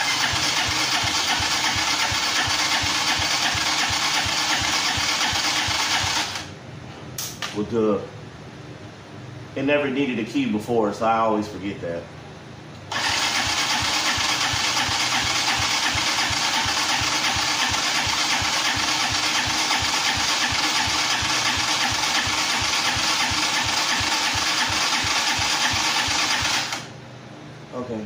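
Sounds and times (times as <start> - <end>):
engine cranking on starter: 0.0 - 6.5, 12.9 - 26.9.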